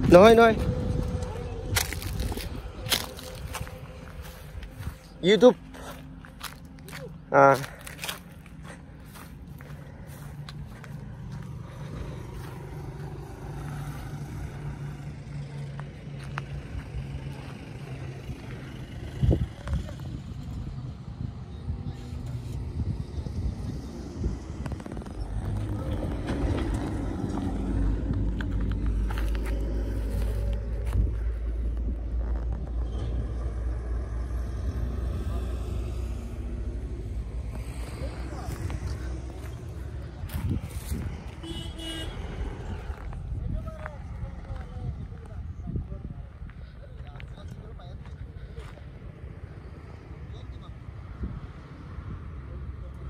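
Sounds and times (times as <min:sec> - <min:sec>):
truck engine humming: 0:00.0 - 0:50.7.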